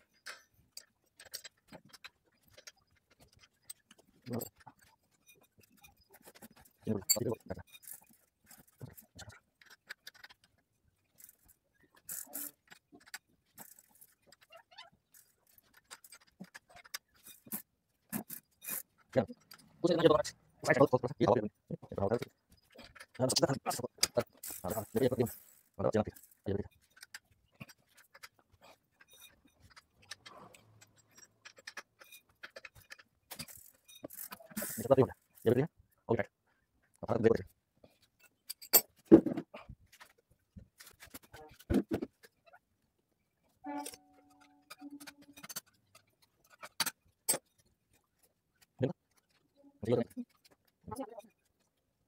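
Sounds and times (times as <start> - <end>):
tool clicks and scrapes on bicycle: 0.0 - 19.8, 22.1 - 35.6, 43.8 - 51.7.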